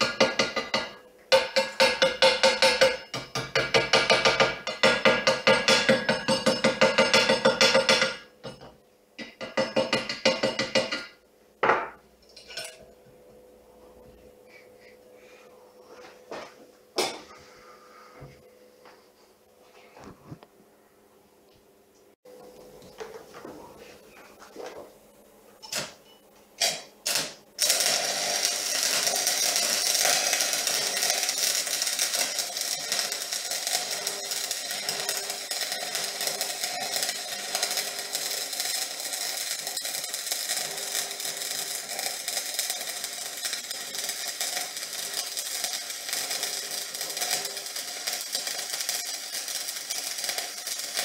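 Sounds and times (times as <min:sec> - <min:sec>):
welding arc strikes: 0:00.0 - 0:08.6, 0:26.6 - 0:51.0
welding arc crackling: 0:26.6 - 0:51.0.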